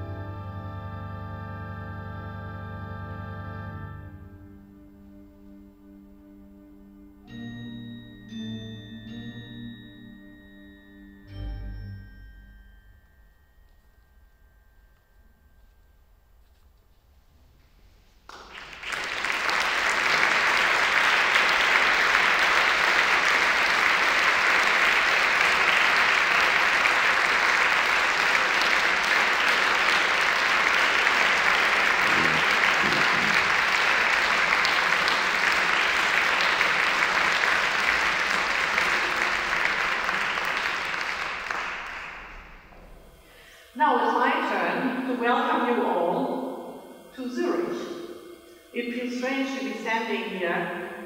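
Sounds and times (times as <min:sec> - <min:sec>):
audience applauding: 0:18.3 - 0:43.4.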